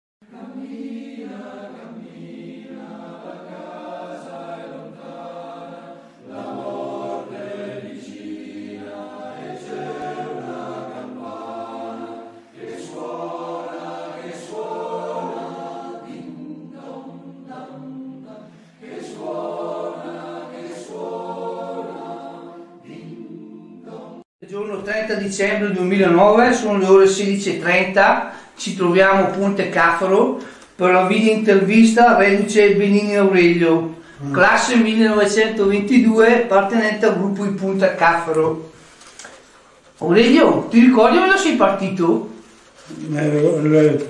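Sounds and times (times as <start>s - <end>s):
choir singing held chords: 0.2s - 24.3s.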